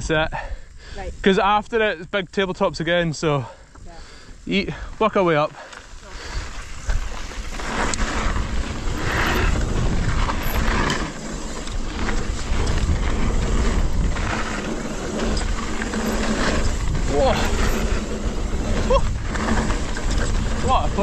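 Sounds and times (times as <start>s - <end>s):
tyre and trail noise: 0.0s - 21.0s
wind rumble on microphone: 5.8s - 21.0s
bike knocks and rattles: 6.7s - 21.0s.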